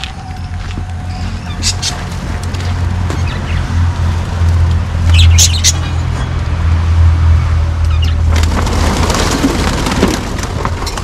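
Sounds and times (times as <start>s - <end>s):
budgerigars chirping: 1.1s - 3.7s, 5.1s - 6.1s
rushing rustling noise: 8.2s - 11.0s.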